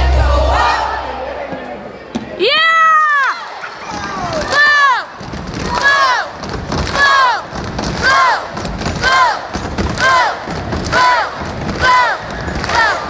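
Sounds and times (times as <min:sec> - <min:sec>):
crowd chanting: 0:00.0 - 0:02.4, 0:03.2 - 0:13.0
crowd cheering: 0:02.4 - 0:13.0
thumping: 0:04.0 - 0:13.0.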